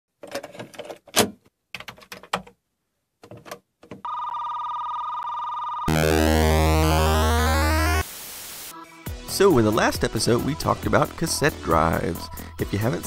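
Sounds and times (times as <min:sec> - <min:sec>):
steady electronic beep tone: 0:05.8 - 0:08.0
synthesizer chord with rising sweeps: 0:05.9 - 0:08.8.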